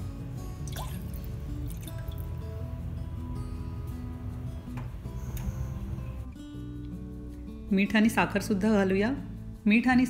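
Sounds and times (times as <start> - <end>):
instrumental music with acoustic guitar: 0.0 - 9.7.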